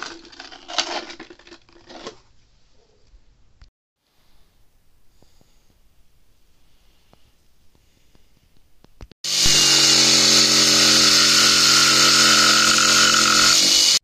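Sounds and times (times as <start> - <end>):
jigsaw cutting plywood: 9.3 - 14.0.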